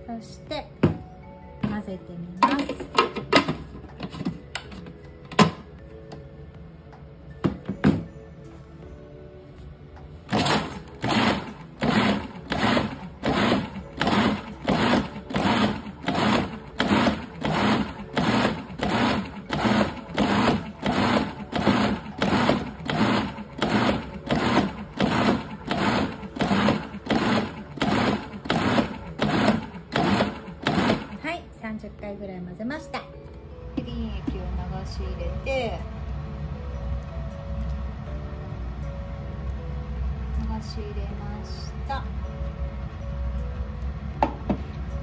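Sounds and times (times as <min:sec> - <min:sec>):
food processor motor pulsing: 0:10.3 - 0:31.2.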